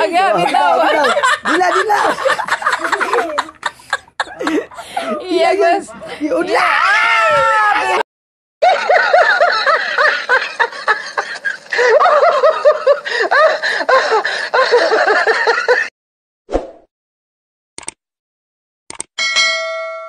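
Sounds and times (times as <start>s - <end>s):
high-pitched cackling laugh: 0.4s - 6.5s, 8.6s - 15.9s.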